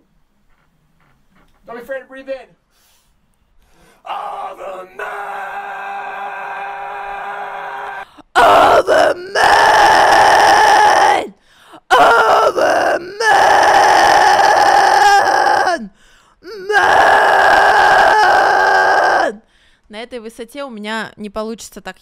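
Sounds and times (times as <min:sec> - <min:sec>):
short breaths: 0:02.7 - 0:04.1, 0:11.4 - 0:11.8, 0:15.9 - 0:16.4, 0:19.4 - 0:19.9.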